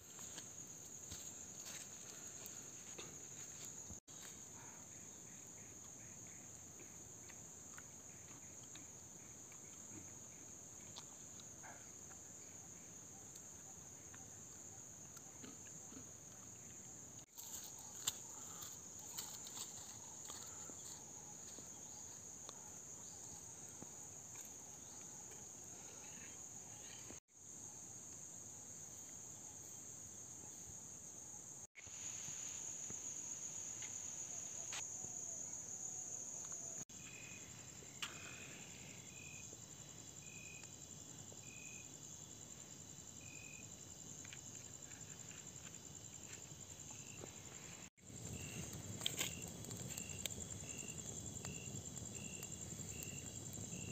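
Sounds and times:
high-pitched insect chorus: 0:16.5 - 0:53.9.

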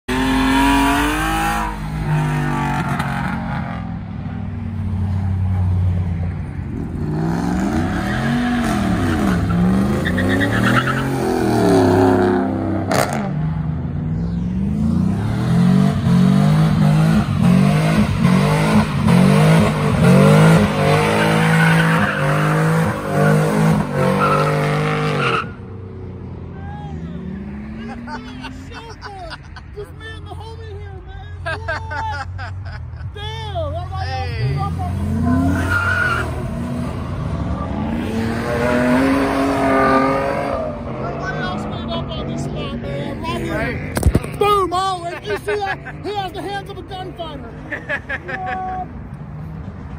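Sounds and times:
truck engines revving: 0:00.0 - 0:49.9
tyres squealing: 0:34.4 - 0:36.6.

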